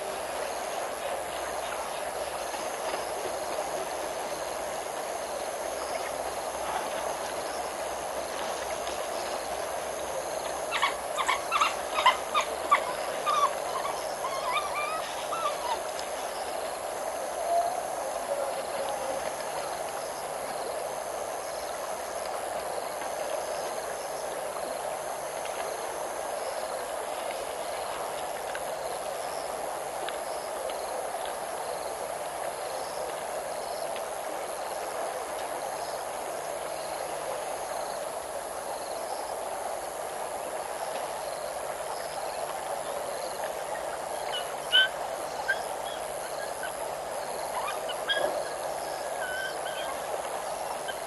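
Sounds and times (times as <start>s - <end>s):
background hiss: 0.0s - 51.0s
bird calling: 10.7s - 15.8s, 47.6s - 50.0s.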